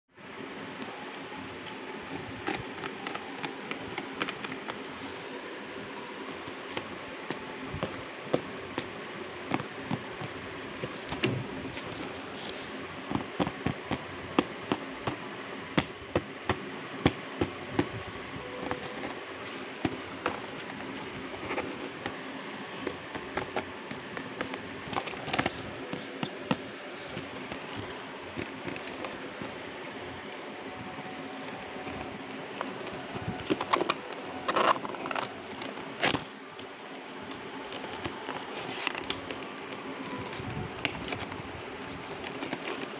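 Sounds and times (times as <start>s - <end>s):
fingers tapping cardboard box: 13.1s - 18.0s.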